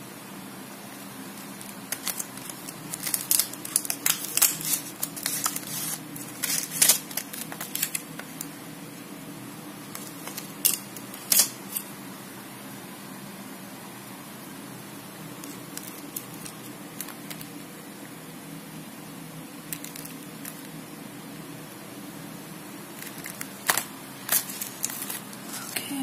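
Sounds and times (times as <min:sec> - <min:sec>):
plastic tray crinkling and clicking: 0:01.4 - 0:08.5, 0:23.0 - 0:25.8.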